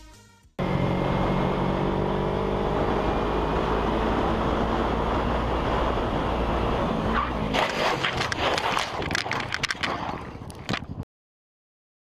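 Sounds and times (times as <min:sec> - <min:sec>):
wind noise on microphone: 0:07.7 - 0:11.0.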